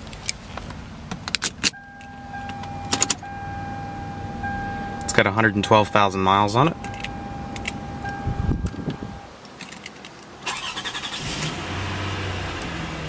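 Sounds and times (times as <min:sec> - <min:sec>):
car engine starting and idling: 0:00.0 - 0:13.0
electronic chime tone: 0:01.8 - 0:09.3.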